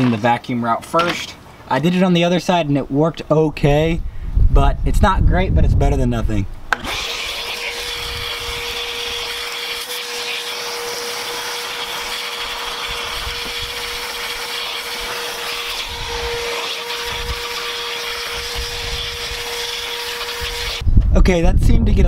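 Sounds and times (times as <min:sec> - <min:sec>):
vacuum cleaner whining: 0:06.7 - 0:20.8.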